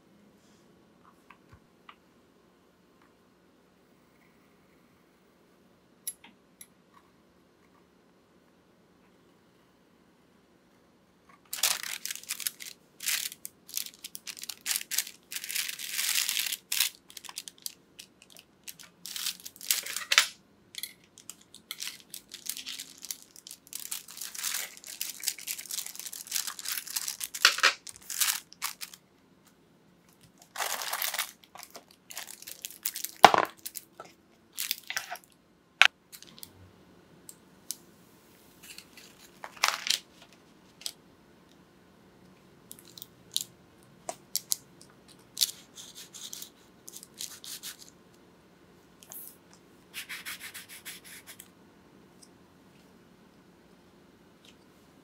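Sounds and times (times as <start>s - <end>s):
parchment paper crinkling: 11.5s - 20.3s, 21.0s - 29.0s, 30.2s - 34.0s, 38.6s - 40.9s.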